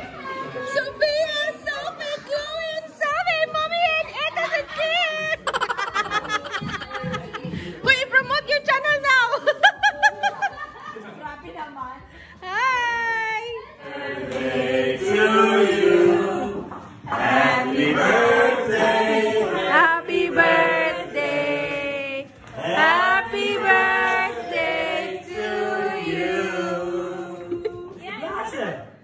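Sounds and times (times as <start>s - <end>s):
group singing birthday song: 12.4s - 28.7s.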